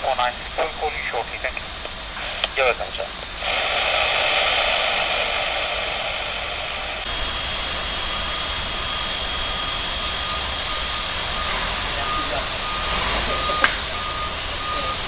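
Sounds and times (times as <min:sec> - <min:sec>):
jet engines hissing and whining: 0:00.0 - 0:15.0.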